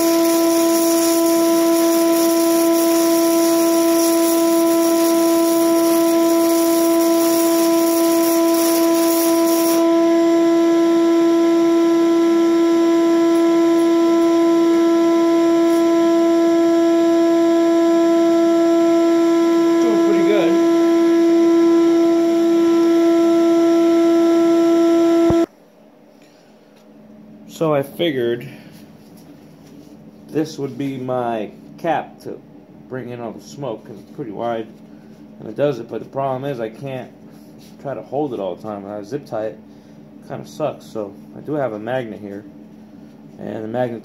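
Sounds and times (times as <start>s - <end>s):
shop vacuum humming: 0.0s - 25.5s
welding arc crackling: 0.0s - 25.5s.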